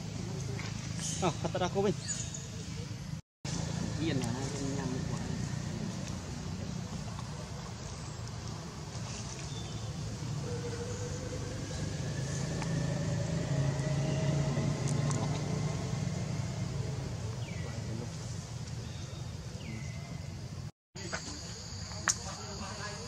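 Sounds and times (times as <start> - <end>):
distant vehicle engine rumble: 0.0 - 21.5.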